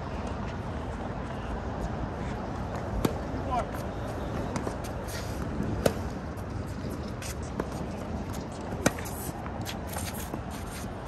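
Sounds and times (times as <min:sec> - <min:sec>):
racket hitting tennis ball: 0:03.0 - 0:03.3, 0:04.5 - 0:06.2, 0:06.9 - 0:10.8.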